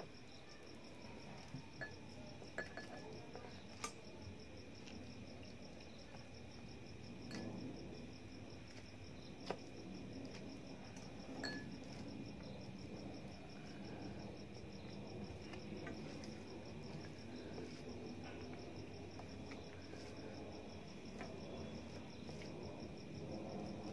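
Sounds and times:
cricket chirping: 0:00.0 - 0:23.9
light clink: 0:01.7 - 0:04.0, 0:11.4 - 0:11.8.

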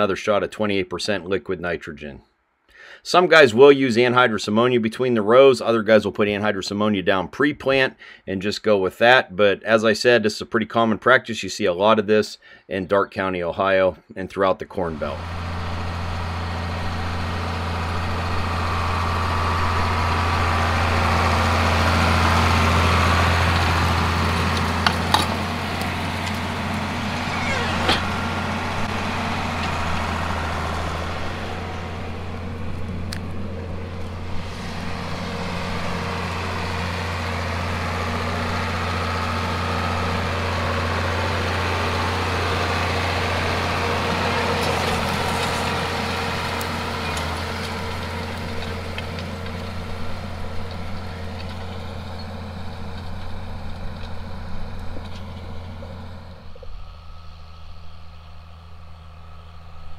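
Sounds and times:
tractor diesel engine running: 0:14.8 - 0:59.9.

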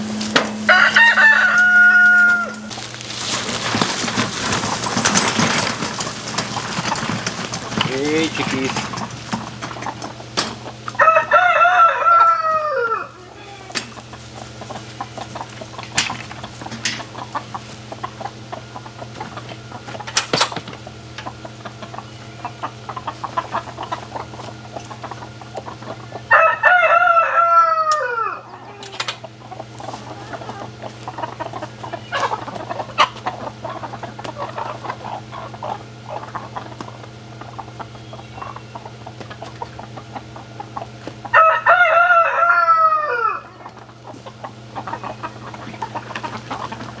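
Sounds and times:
chickens clucking: 0:00.0 - 0:47.0
rooster crowing: 0:00.6 - 0:02.8, 0:10.9 - 0:13.9, 0:26.3 - 0:28.9, 0:41.3 - 0:43.7.

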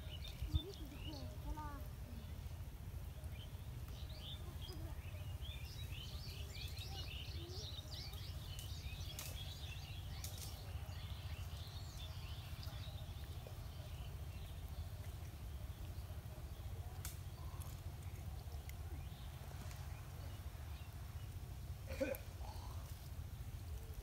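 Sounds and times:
low background rumble: 0:00.0 - 0:24.0
small birds chirping: 0:00.0 - 0:24.0
faint clicks: 0:10.1 - 0:10.7, 0:16.8 - 0:18.9.

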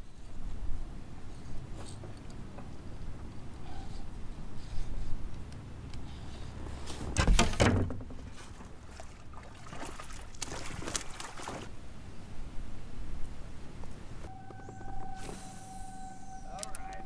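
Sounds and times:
fish splashing in water: 0:08.5 - 0:11.7.

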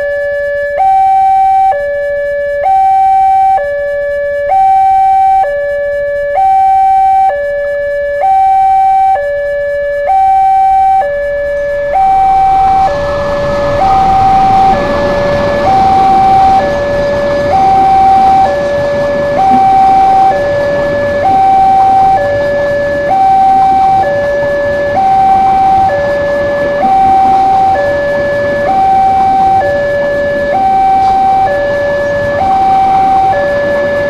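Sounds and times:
level crossing two-tone alarm: 0:00.0 - 0:34.0
train passing rumble: 0:10.6 - 0:34.0.

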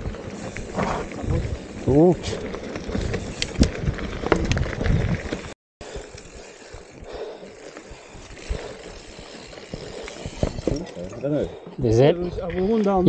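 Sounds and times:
bike tyre rumble on trail: 0:00.0 - 0:11.6.

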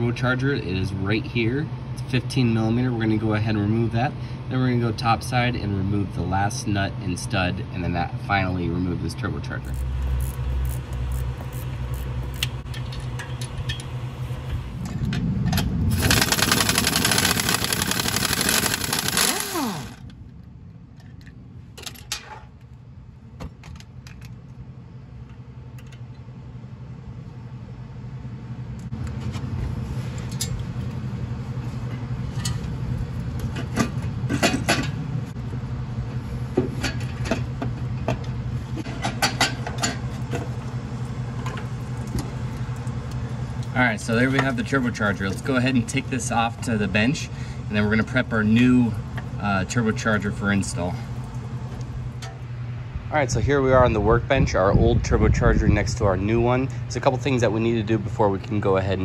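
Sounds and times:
steady low hum: 0:00.0 - 0:59.0
rushing noise with falling whine: 0:13.5 - 0:20.4.

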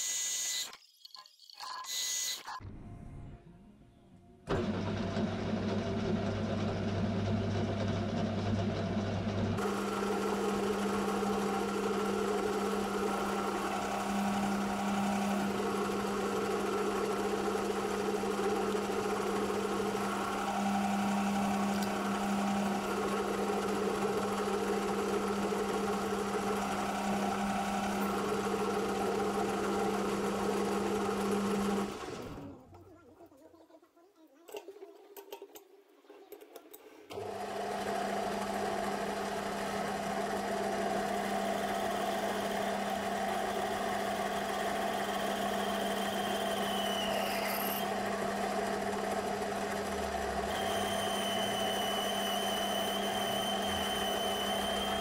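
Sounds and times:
drill cutting aluminium: 0:00.0 - 0:02.6, 0:09.6 - 0:28.5, 0:42.9 - 0:48.5, 0:50.0 - 0:55.0
lathe motor humming: 0:04.5 - 0:32.6, 0:37.1 - 0:55.0.

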